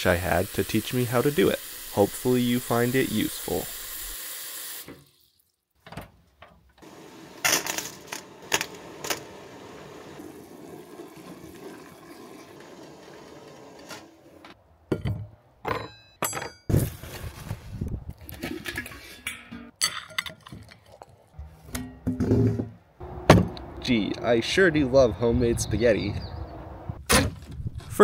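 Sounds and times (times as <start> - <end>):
tap water running into pot: 0.0 - 5.5, 9.0 - 13.9
metal clanks and rattles: 14.9 - 16.8, 18.4 - 20.8.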